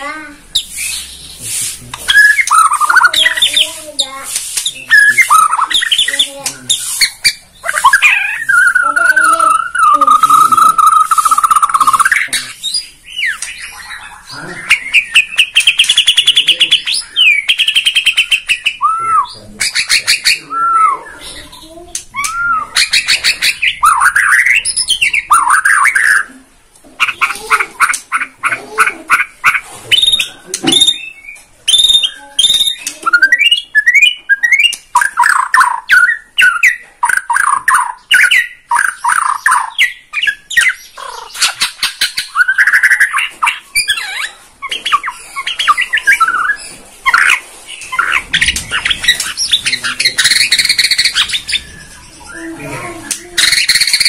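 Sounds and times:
songbird singing whistles: 0:02.1 - 0:03.4, 0:17.1 - 0:19.4, 0:22.2 - 0:26.3, 0:30.0 - 0:40.8.

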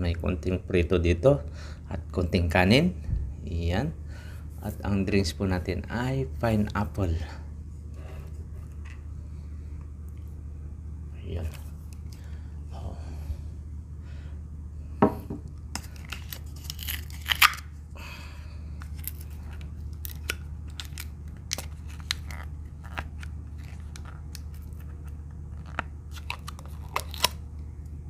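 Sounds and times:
steady low hum: 0:00.0 - 0:28.0
glass set down on table: 0:15.0 - 0:15.4.

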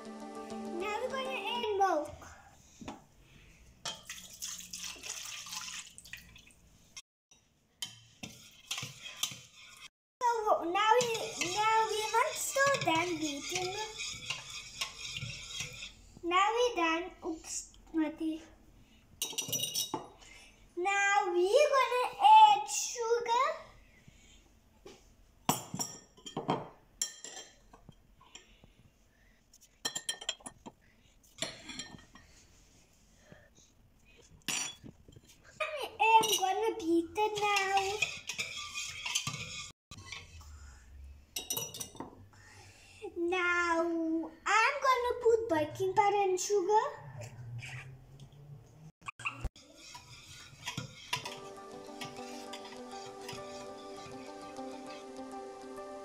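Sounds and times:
whisk clinking against bowl: 0:07.8 - 0:09.9, 0:10.8 - 0:16.0, 0:37.3 - 0:40.3, 0:49.7 - 0:55.0
metal spoon clinking on glass bowl: 0:19.2 - 0:20.0, 0:41.4 - 0:42.1.

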